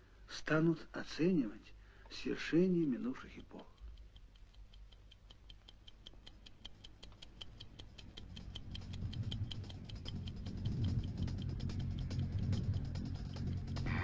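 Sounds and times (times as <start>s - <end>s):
clock ticking: 2.0s - 14.0s
low hum: 6.9s - 14.0s.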